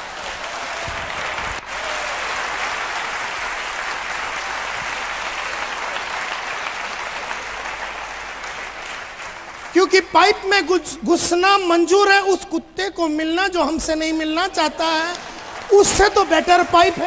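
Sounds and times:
audience applauding: 0.0s - 10.3s, 14.8s - 17.0s.

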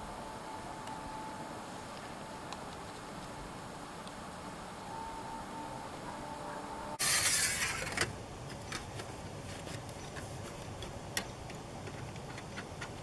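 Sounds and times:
loud hiss: 7.0s - 8.0s.

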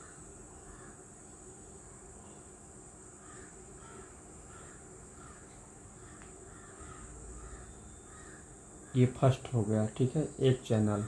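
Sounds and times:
crows cawing: 0.0s - 1.0s, 3.2s - 9.4s
steady high hiss: 0.0s - 11.0s.

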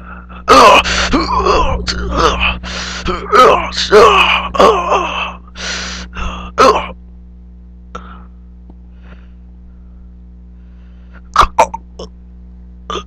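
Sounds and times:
person grunting or coughing: 0.0s - 5.4s, 6.0s - 7.0s, 11.4s - 11.8s
low electrical hum: 0.0s - 13.0s.

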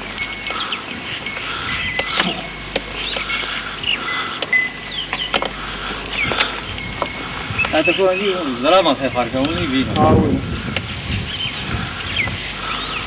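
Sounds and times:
light metallic jingling: 0.0s - 9.1s
small birds chirping: 0.0s - 13.0s.

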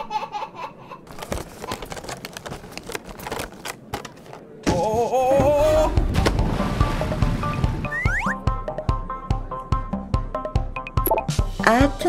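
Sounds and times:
person giggling: 0.0s - 1.8s
plastic toys scraping and clattering: 1.1s - 4.5s
wavering cartoon melody: 7.8s - 8.4s.

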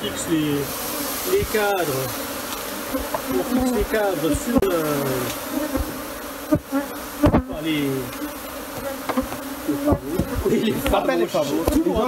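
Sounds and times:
bees buzzing: 0.0s - 12.0s
sharp knocks: 5.7s - 7.5s.

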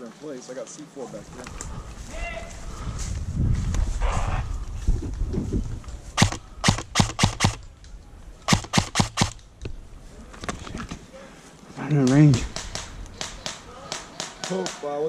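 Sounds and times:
airsoft rifle shots: 6.2s - 7.7s, 8.5s - 9.4s, 12.0s - 15.0s.

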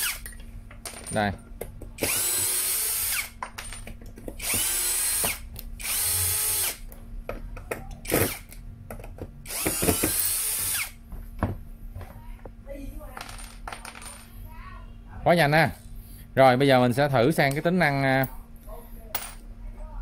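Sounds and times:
cordless drill driving screws: 2.0s - 3.3s, 4.4s - 6.8s, 9.5s - 11.0s.

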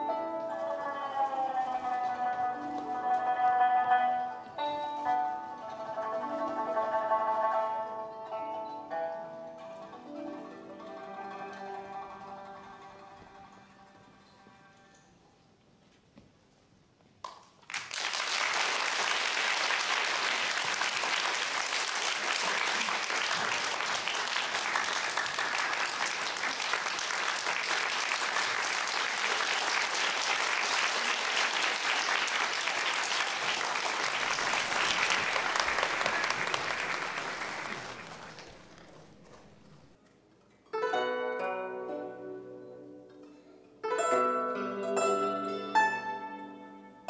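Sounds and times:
audience applauding: 17.6s - 39.8s.

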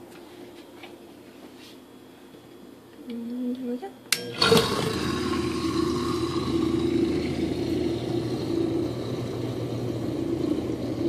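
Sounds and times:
butter churn motor running: 4.2s - 11.0s.

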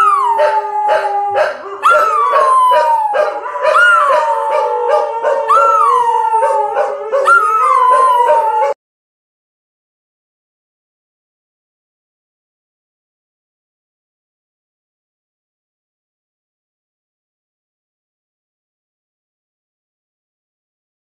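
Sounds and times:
dogs howling: 0.0s - 8.8s.

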